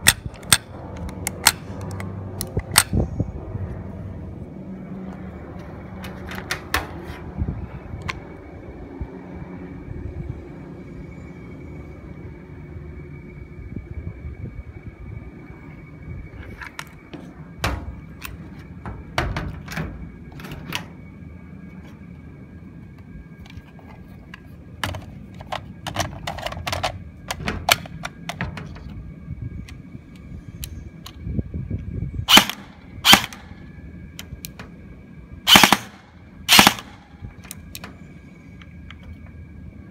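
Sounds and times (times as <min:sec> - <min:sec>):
airsoft rifle firing bursts: 0:35.5 - 0:37.0.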